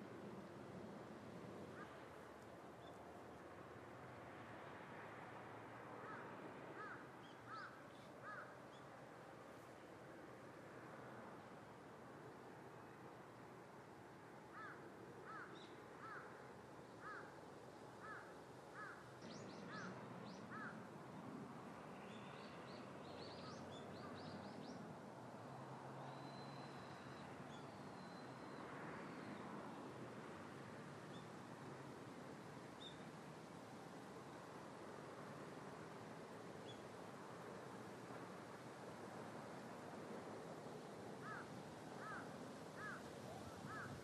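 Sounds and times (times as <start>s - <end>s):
bird calling: 42.8s - 44.0s.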